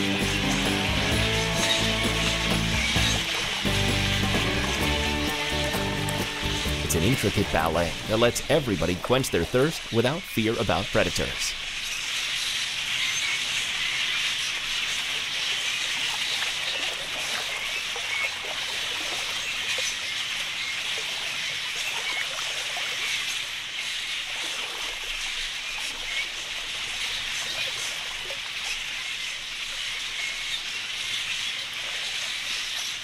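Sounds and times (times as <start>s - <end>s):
flock of budgerigars chattering: 0.0s - 16.3s.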